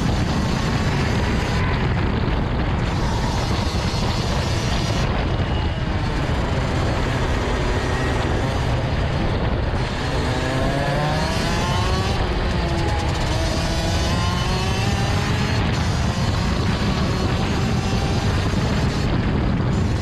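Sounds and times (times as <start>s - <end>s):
kart engine running: 0.0s - 20.0s.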